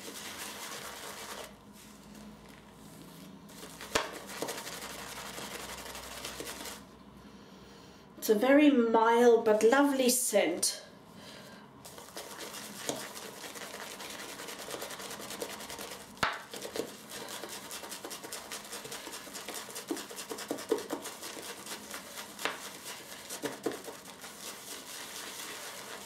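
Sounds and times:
shaving brush scratching soap: 0.0s - 2.6s, 3.6s - 6.9s, 11.9s - 26.0s.

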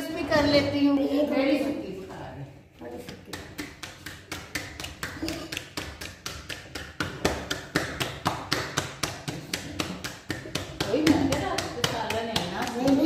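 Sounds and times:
dough slapped between palms: 3.0s - 13.0s.

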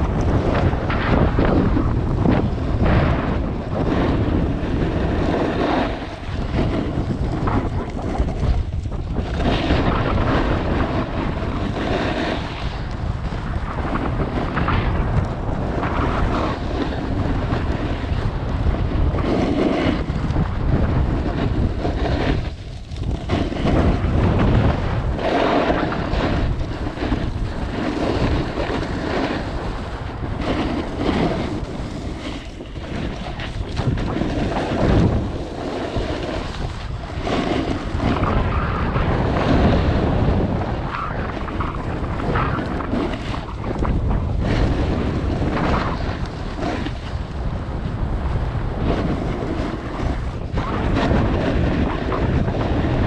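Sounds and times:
snowboard scraping snow: 0.0s - 53.0s
wind on microphone: 0.0s - 53.0s.

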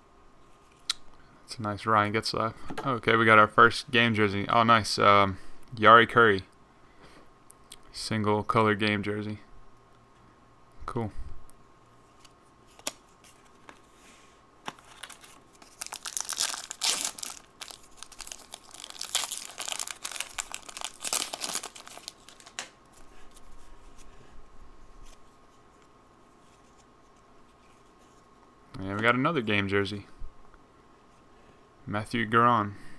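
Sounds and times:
wrapper and cards rustling: 12.1s - 24.2s
foil wrapper tearing: 14.8s - 22.7s.

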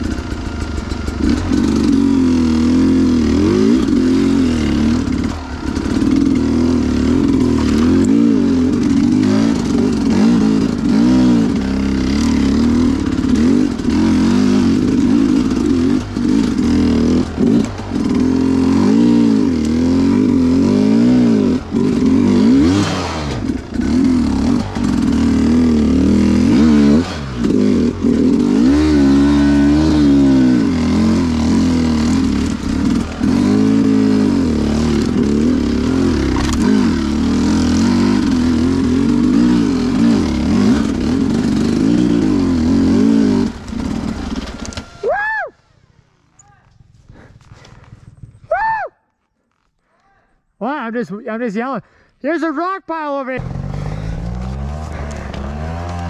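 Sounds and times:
dirt bike engine revving: 0.0s - 46.3s, 53.2s - 56.0s.

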